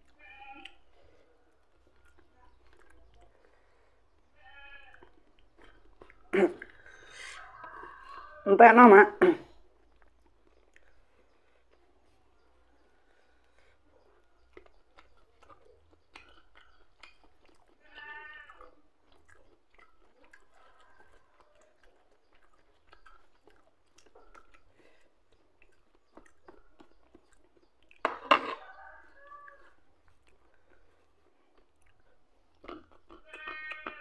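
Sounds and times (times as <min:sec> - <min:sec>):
chewing and lip-smacking: 0:00.0 - 0:08.4, 0:09.5 - 0:34.0.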